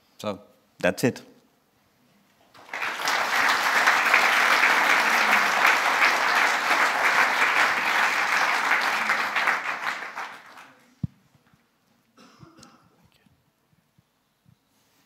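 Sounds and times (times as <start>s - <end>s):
audience applauding: 2.5s - 10.8s.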